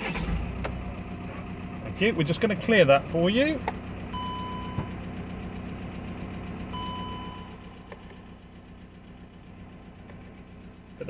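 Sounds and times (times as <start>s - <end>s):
diesel engine idling: 0.0s - 11.0s
dashboard warning chimes: 4.1s - 5.0s, 6.7s - 7.8s.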